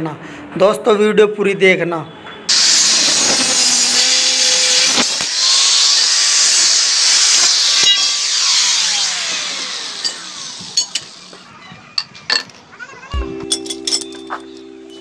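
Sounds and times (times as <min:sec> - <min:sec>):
angle grinder cutting steel: 0:02.5 - 0:11.5
grinder disc spinning down: 0:02.5 - 0:11.5.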